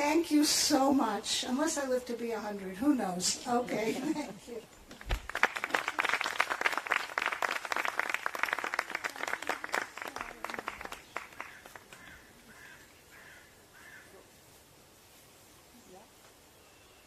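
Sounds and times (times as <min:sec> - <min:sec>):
audience applauding: 0:05.0 - 0:12.2.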